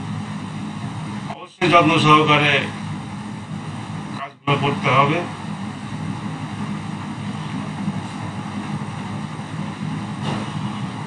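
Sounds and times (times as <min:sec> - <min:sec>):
low rumbling background noise: 0:00.0 - 0:11.0
brief knock: 0:10.2 - 0:10.6.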